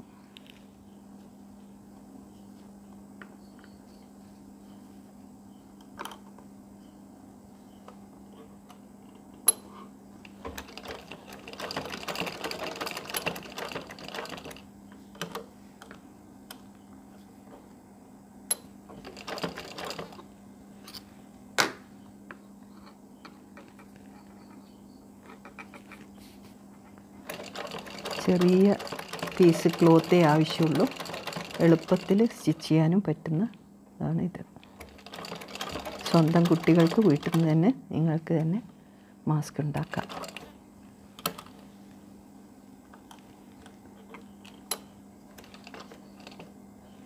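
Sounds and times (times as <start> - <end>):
steady low hum: 0.0 - 47.0
sewing machine stitching: 10.5 - 14.6, 19.0 - 20.2, 27.2 - 32.2, 34.8 - 37.5, 39.8 - 40.5.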